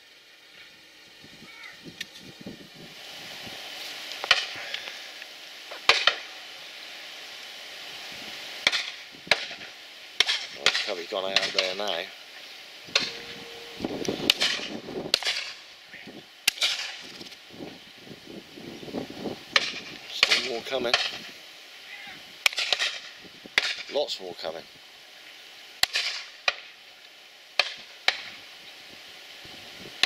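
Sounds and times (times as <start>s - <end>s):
steady hiss: 0.0s - 30.0s.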